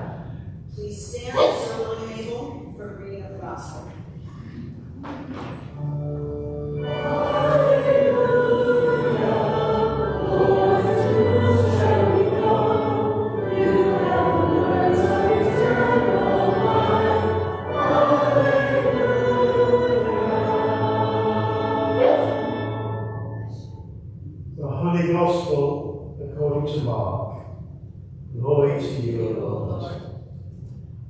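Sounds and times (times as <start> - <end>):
congregation singing: 5.8 - 23.9.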